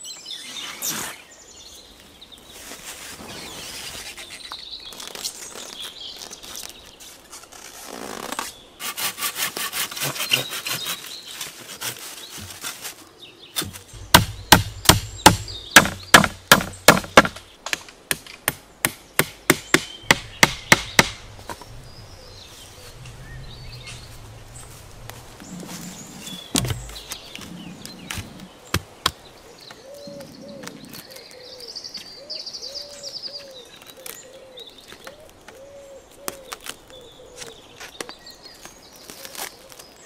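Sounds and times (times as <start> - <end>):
saw cutting branch: 7.1 - 13.0.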